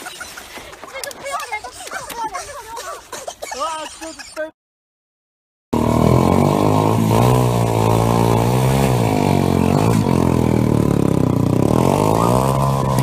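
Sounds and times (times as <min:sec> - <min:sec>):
motorcycle engine revving: 0:05.8 - 0:13.0.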